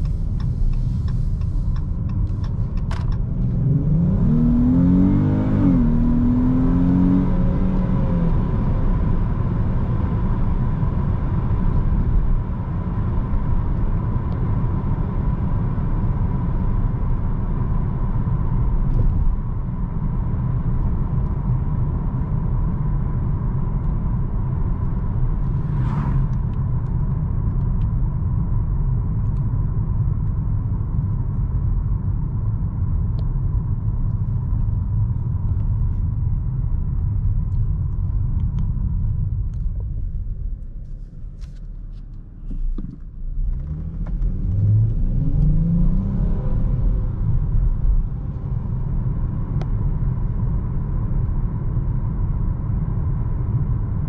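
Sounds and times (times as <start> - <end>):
car engine and tyres rumbling: 0.0 - 54.0.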